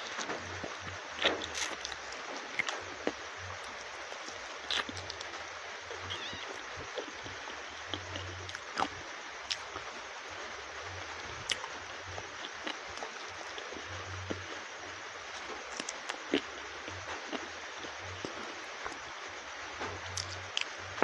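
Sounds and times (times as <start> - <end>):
steady hiss: 0.0 - 21.0
wet chewing mouth clicks: 4.1 - 5.3, 7.8 - 8.9, 12.4 - 13.7.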